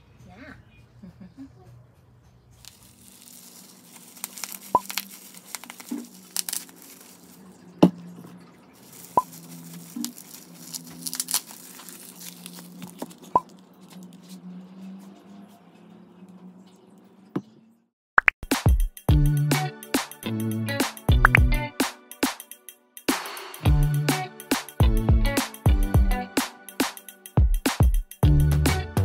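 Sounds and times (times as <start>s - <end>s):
plastic bag crinkling: 2.6s - 14.2s.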